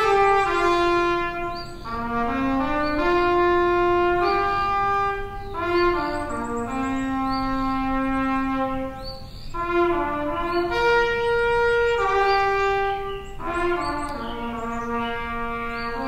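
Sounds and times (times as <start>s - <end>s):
slow brass hymn music: 0.0s - 16.0s.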